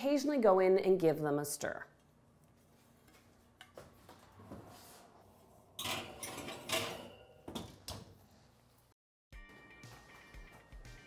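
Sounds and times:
dish scraping and clattering on rack: 0:05.7 - 0:07.7.

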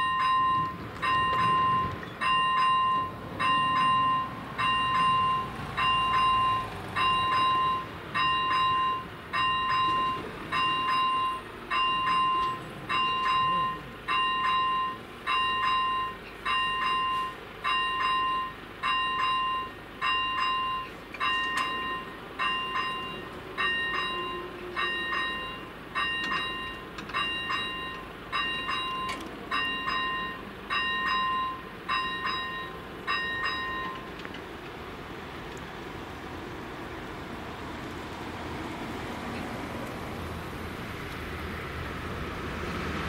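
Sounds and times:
level crossing warning bell: 0:00.0 - 0:38.0.

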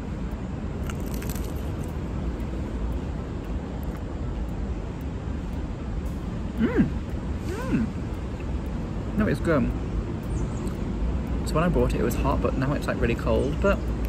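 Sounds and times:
low outdoor rumble: 0:00.0 - 0:14.0
faint crisp clicks: 0:00.3 - 0:06.2.

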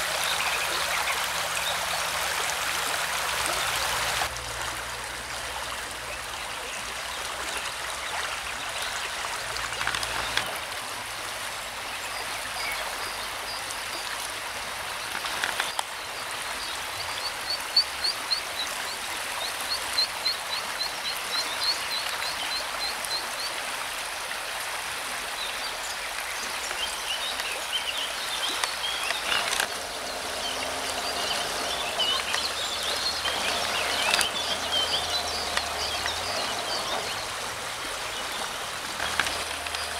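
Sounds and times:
river water rushing: 0:00.0 - 0:39.9.

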